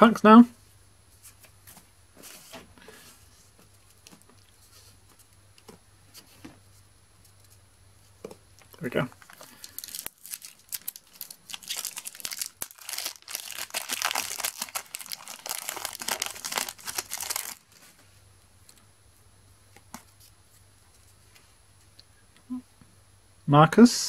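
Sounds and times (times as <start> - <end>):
foil wrapper crinkling and tearing: 9.0 - 17.8.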